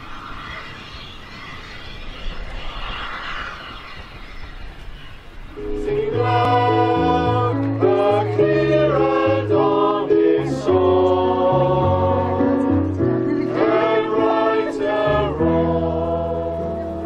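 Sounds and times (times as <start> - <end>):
group singing in harmony: 5.6 - 17.0.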